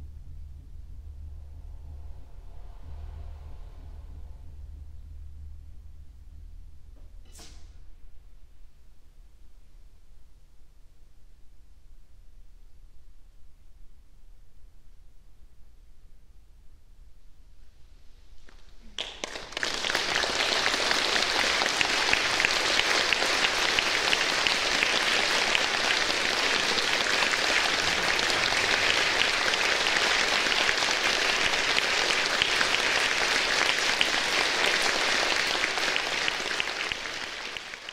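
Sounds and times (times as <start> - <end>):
audience applause: 19.0 - 37.9.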